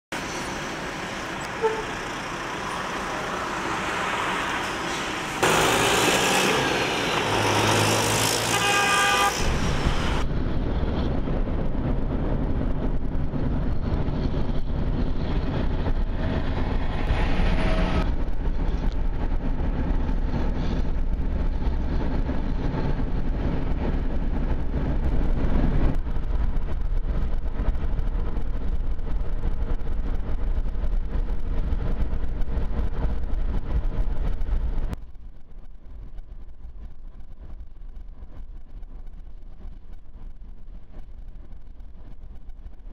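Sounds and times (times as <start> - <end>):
truck traffic noise: 0.1 - 35.0
road and engine rumble: 0.1 - 42.9
vehicle horn: 1.4 - 2.0, 8.3 - 10.2.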